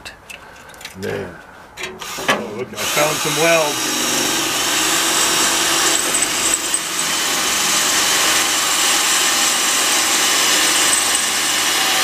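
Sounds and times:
electric drill grinding through steel: 2.0s - 12.0s.

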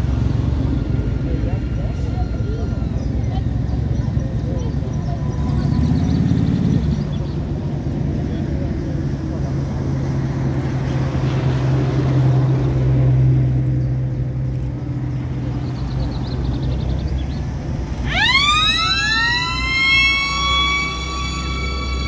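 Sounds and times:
vehicle engines humming: 0.0s - 22.0s
siren wailing: 18.0s - 22.0s.

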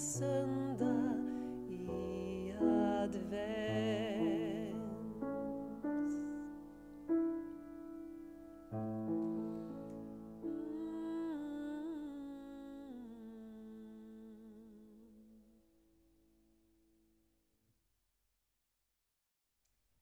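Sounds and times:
soprano voice singing: 0.0s - 6.6s, 9.4s - 15.6s
grand piano: 0.0s - 15.2s.

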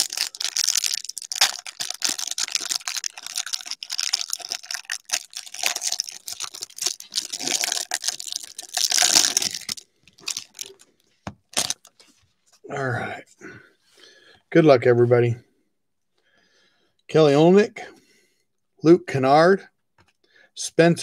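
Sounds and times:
plastic wrapper crinkling: 0.0s - 12.1s.

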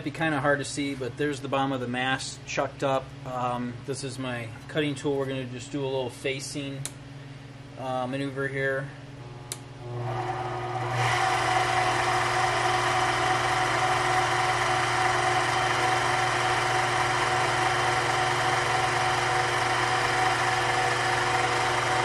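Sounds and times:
metal lathe motor humming: 9.2s - 22.0s
lathe tool cutting brass: 10.0s - 22.0s.

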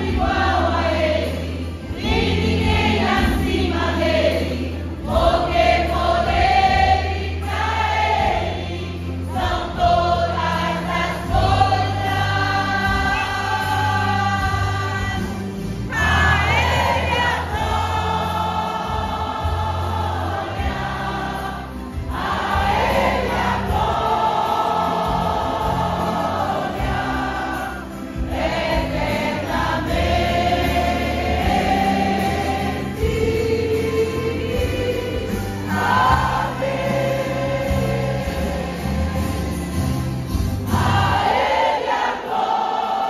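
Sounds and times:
low musical accompaniment: 0.0s - 43.0s
women's choir singing a hymn: 0.0s - 43.0s.

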